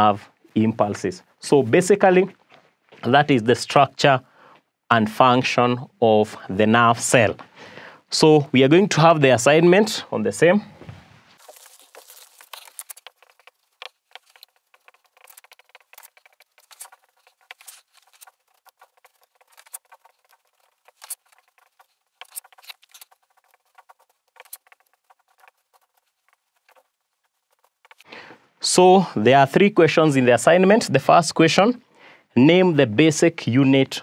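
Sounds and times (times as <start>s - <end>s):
marker scratching on whiteboard: 11.9s - 28.1s.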